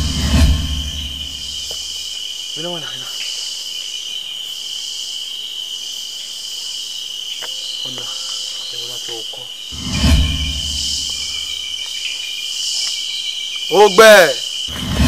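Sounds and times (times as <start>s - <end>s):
hissy insect layer: 0.0s - 15.0s
night insects trilling: 0.0s - 15.0s.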